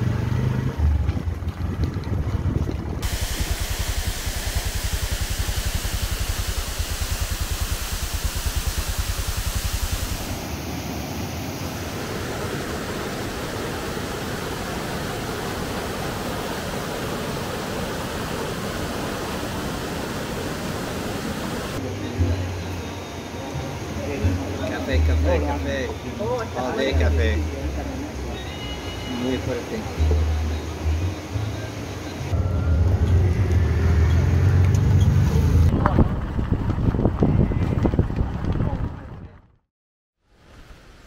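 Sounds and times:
waterfall rushing: 3.0s - 32.4s
whitewater rapids rushing: 3.0s - 32.4s.

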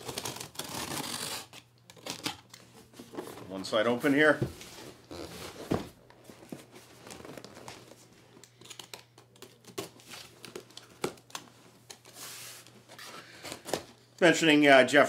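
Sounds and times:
utility knife cutting packing tape: 0.0s - 2.4s
scrapes and crinkles on cardboard: 11.5s - 13.3s.

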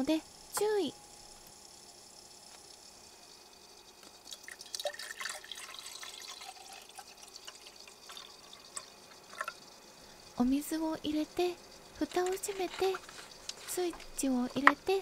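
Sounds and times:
water pouring into kettle: 4.0s - 9.8s.

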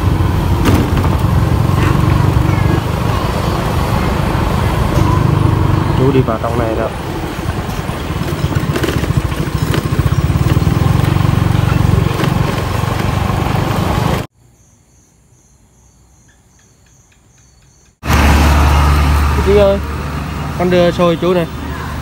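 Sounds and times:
small motorbike engine running: 0.0s - 14.3s.

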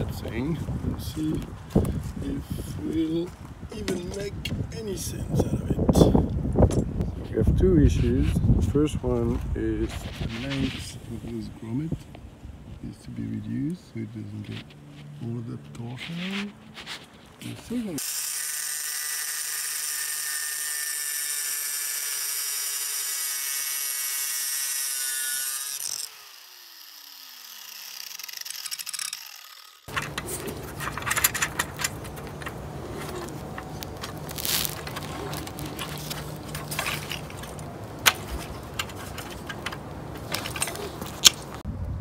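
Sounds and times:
angle grinder cutting steel: 18.0s - 37.6s
metal parts clicking: 27.9s - 41.4s.

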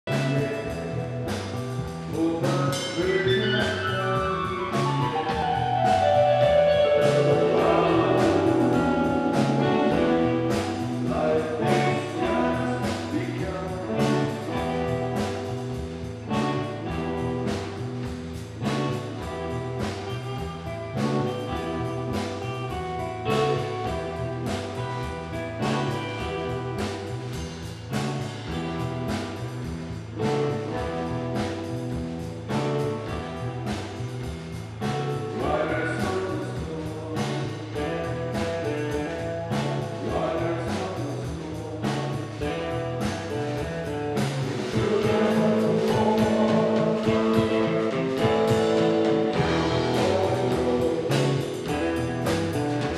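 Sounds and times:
drums keeping a steady beat: 0.0s - 52.9s
live rock band playing: 0.0s - 52.9s
man singing into microphone: 2.1s - 5.6s, 7.1s - 10.3s, 11.0s - 14.4s, 35.3s - 42.1s, 44.7s - 52.0s.

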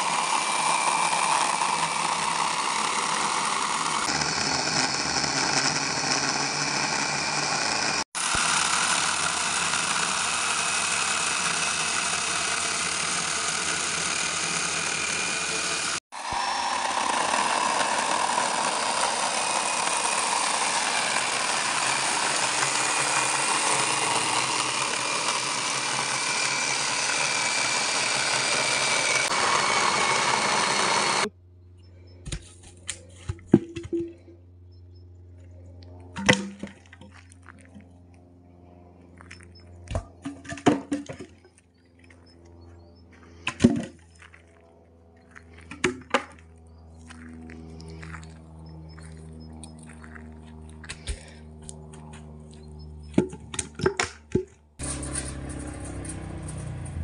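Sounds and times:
chainsaw cutting wood: 0.0s - 31.4s, 45.4s - 57.0s.

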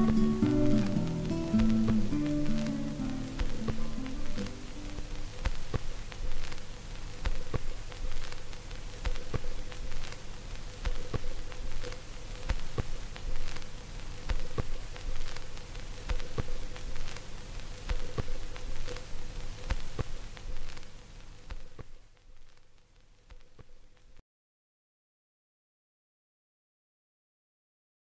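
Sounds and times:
sharp clicks: 0.0s - 20.9s
faint steady hum: 0.0s - 24.2s
steady hiss: 0.0s - 24.2s.

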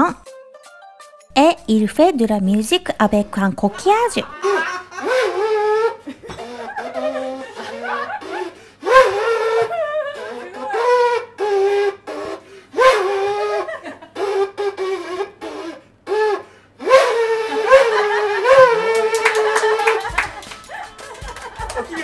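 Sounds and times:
seashell horn tooting: 5.0s - 19.1s.

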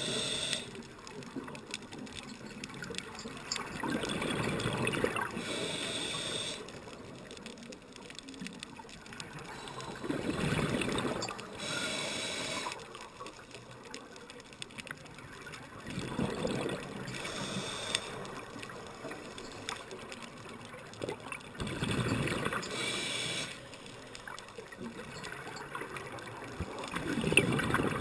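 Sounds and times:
diving regulator hiss: 0.0s - 0.8s, 5.3s - 6.7s, 11.6s - 12.8s, 17.2s - 18.2s, 22.7s - 23.7s
exhaled bubbles gurgling: 2.4s - 6.6s, 9.0s - 12.7s, 15.4s - 19.2s, 20.9s - 23.5s, 24.7s - 28.0s.

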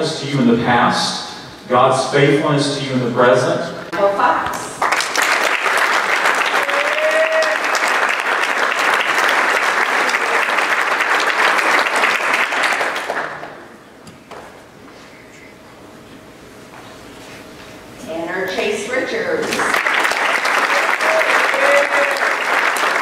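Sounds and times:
audience applauding: 4.8s - 13.7s, 19.5s - 23.0s.

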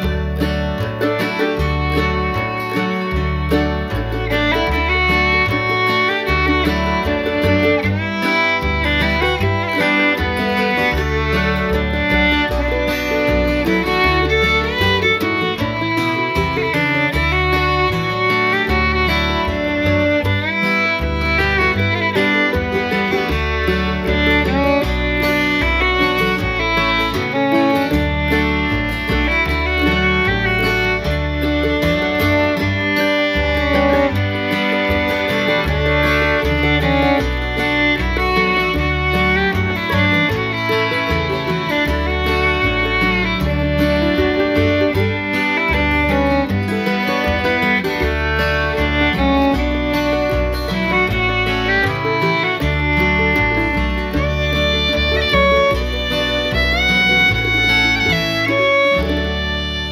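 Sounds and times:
bass notes: 0.0s - 59.9s
fiddle: 0.0s - 59.9s
guitar: 0.0s - 59.9s.

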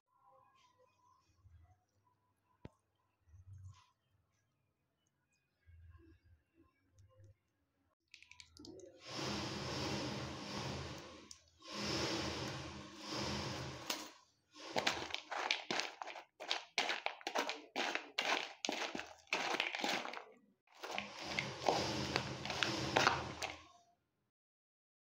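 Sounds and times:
snacks rustling and crunching: 14.7s - 23.6s.

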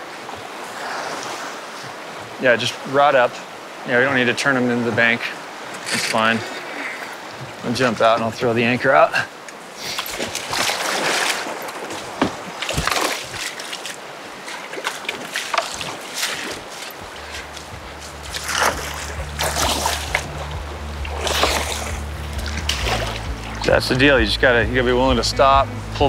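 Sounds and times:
water splashing and sloshing: 0.0s - 26.0s
background music: 17.2s - 26.0s.

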